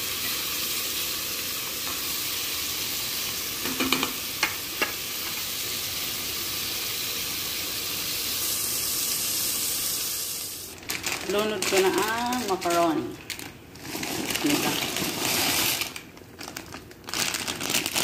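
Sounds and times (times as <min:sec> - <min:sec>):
food sizzling in hot oil: 0:00.0 - 0:10.8.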